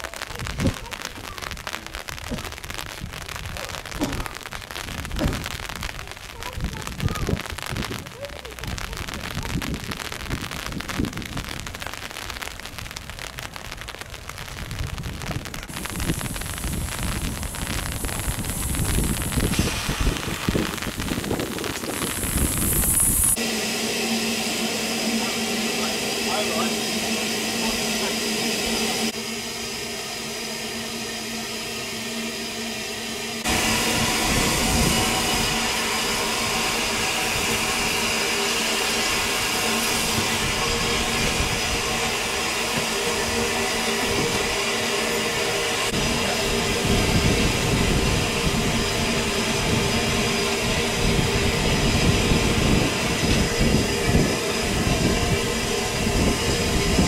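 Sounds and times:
steam locomotive hissing: 0.0 - 12.4, 13.5 - 57.0
low rumbles: 0.0 - 57.0
steady low tone: 15.8 - 57.0.

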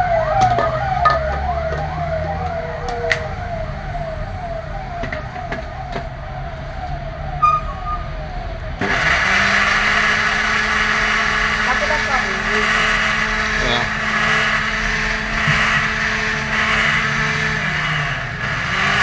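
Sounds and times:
siren-like wail: 0.0 - 19.0
mixer grinder blending: 8.8 - 19.0.

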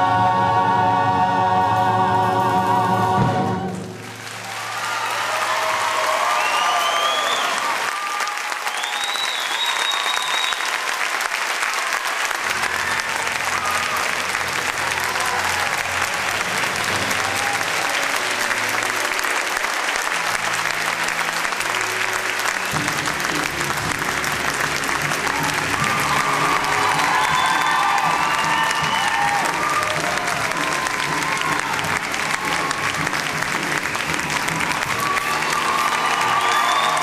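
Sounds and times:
orchestra playing low notes: 0.0 - 4.6
audience applauding: 3.6 - 37.0.

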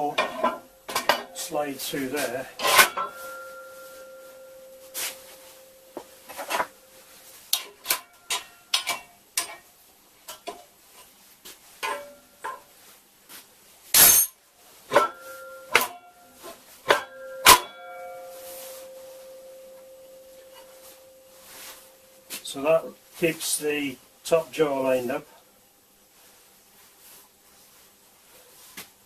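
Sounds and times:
metal clank: 0.0 - 1.5, 2.2 - 5.4, 7.5 - 9.6, 11.8 - 12.6, 14.0 - 19.4
steel parts knocking and clinking: 0.1 - 1.5, 2.6 - 3.6, 7.5 - 9.6, 11.8 - 12.6, 14.0 - 16.1.

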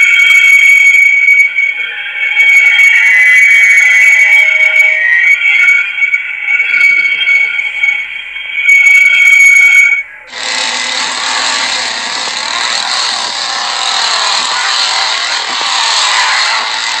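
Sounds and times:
shrill high tone: 0.0 - 17.0
chainsaw at high revs: 10.3 - 17.0.

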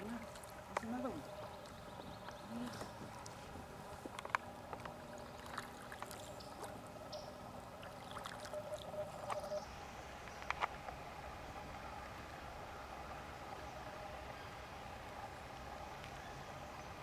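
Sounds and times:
water lapping and dripping: 0.0 - 16.2.

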